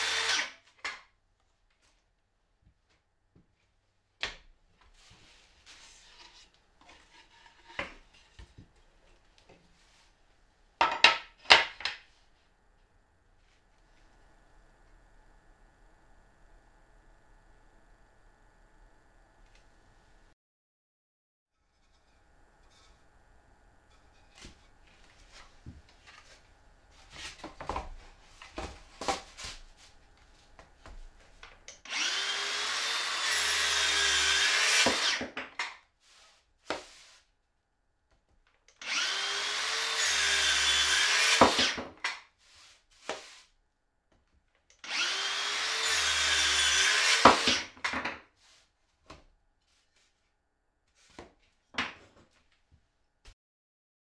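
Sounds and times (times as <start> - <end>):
circular saw cutting wood: 0.0 - 0.6, 31.7 - 35.7, 38.8 - 42.0, 44.8 - 47.8.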